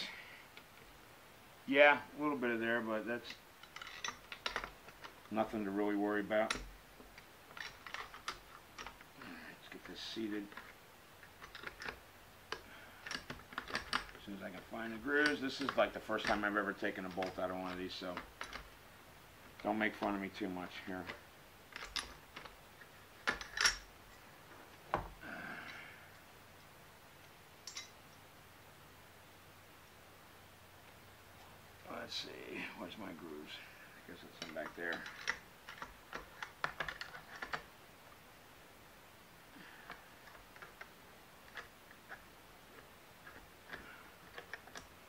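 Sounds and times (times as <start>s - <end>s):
metallic clicks of rifle handling: 3.2s - 5.3s, 19.5s - 24.2s, 26.6s - 28.2s, 34.3s - 37.7s.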